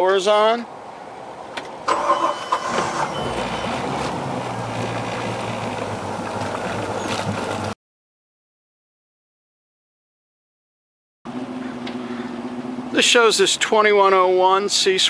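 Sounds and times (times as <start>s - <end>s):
boat engine starting and idling: 1.9s - 7.8s
prop wash churning: 1.9s - 7.8s
short high beeps: 2.0s - 3.8s.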